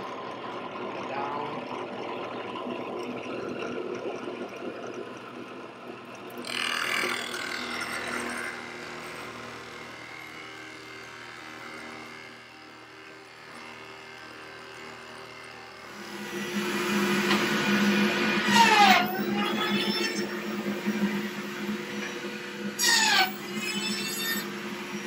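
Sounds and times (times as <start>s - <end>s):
drill press boring into wood: 6.4s - 25.0s.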